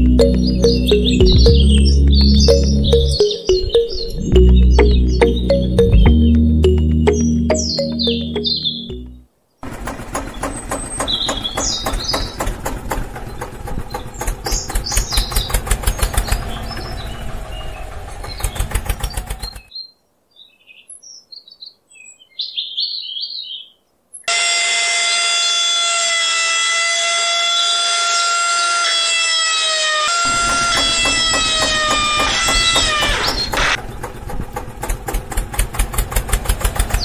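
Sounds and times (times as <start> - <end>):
birds chirping: 0.0 - 24.3, 26.8 - 34.2, 36.7 - 37.0
small motor whining: 27.8 - 33.8.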